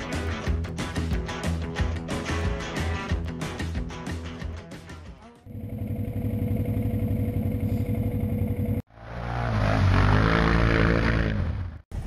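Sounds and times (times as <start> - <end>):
atv engine idling: 5.5 - 8.8.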